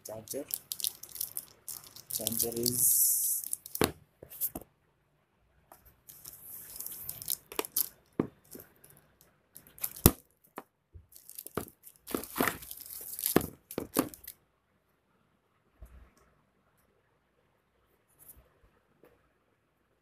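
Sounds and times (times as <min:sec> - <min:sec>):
plastic bags crinkling: 0:00.0 - 0:03.9, 0:06.1 - 0:08.9, 0:09.6 - 0:10.2, 0:11.1 - 0:14.3
cardboard rustling: 0:06.1 - 0:08.7, 0:11.2 - 0:14.3.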